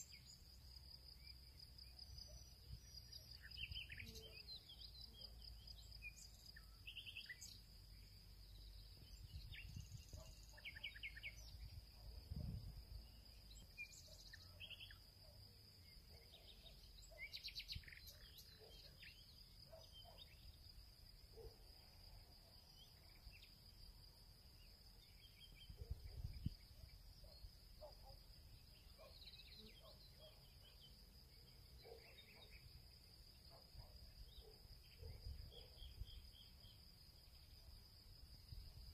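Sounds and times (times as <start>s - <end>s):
insect trill: 0.0s - 38.9s
bird chirps: 2.0s - 20.6s, 25.0s - 32.7s.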